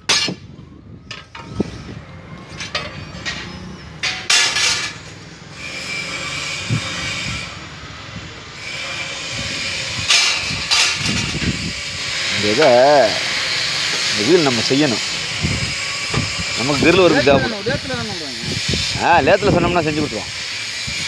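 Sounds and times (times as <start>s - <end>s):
steel rods clanking on metal: 0.0s - 0.4s, 2.5s - 6.6s, 8.6s - 15.2s
steady rushing hiss: 6.8s - 21.0s.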